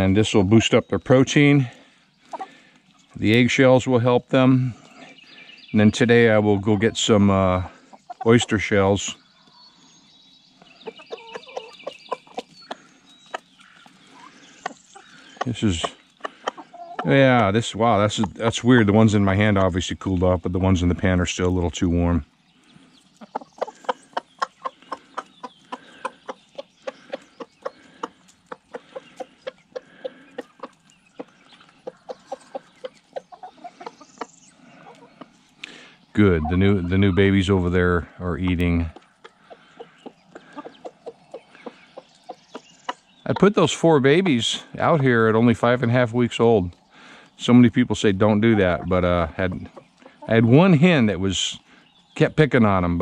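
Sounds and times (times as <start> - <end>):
chickens clucking: 0.0 - 53.0.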